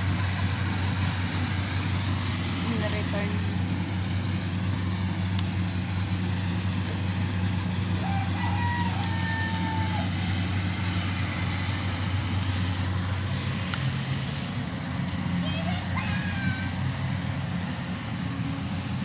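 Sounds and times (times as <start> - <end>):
motors humming: 0.0 - 19.0.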